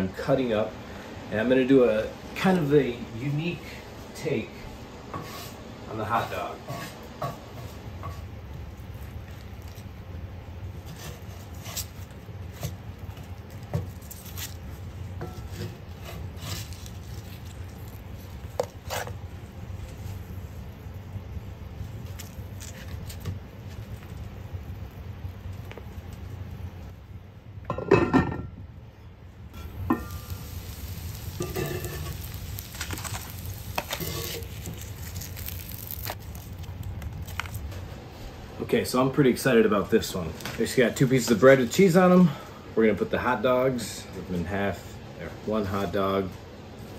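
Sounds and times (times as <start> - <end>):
faint frying sizzle: 0.0 - 27.0, 29.5 - 46.9
steady low hum: 0.0 - 46.9
spatula scraping a skillet: 5.1 - 8.3, 10.8 - 12.8, 15.2 - 19.2, 29.6 - 36.0.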